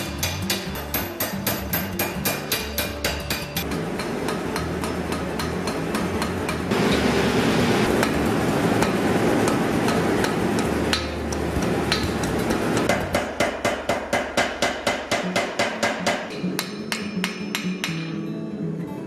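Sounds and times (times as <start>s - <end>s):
hammer striking hot steel: 0.0s - 7.1s, 7.8s - 18.3s
gas forge burner roaring: 2.4s - 15.2s.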